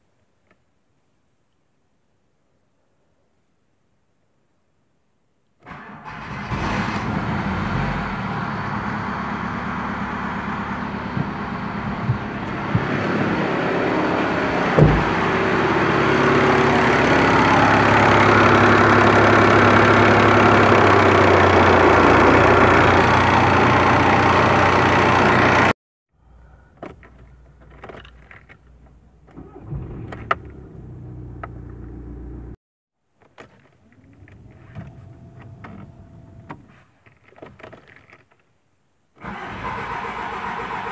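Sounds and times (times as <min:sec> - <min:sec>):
diesel engine idling: 0:07.1 - 0:25.8.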